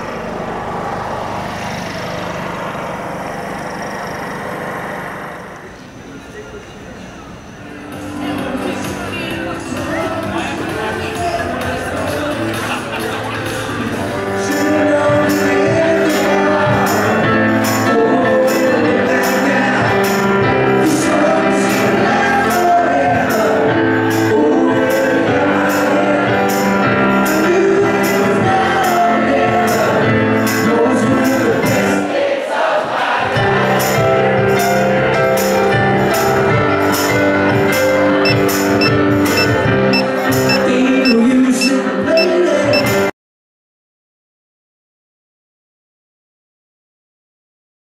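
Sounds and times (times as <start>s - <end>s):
man singing into a microphone: 8.1s - 32.1s, 39.5s - 43.1s
steady beat: 38.3s - 40.7s.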